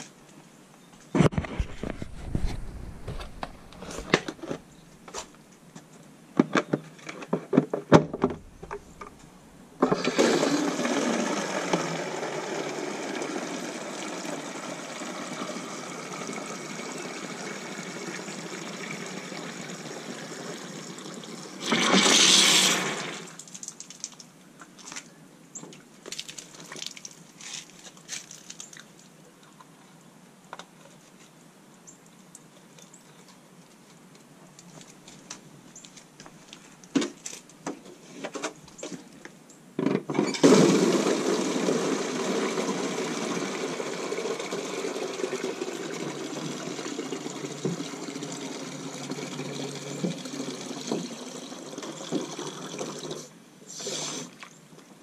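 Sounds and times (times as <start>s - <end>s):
water running into plastic container: 9.8s - 24.2s, 40.3s - 54.5s.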